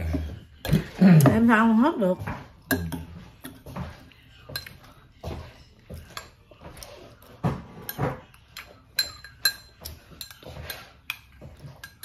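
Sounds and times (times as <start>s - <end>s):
spoon clinking on ceramic bowl: 2.6s - 3.6s, 4.4s - 6.7s, 7.6s - 12.0s.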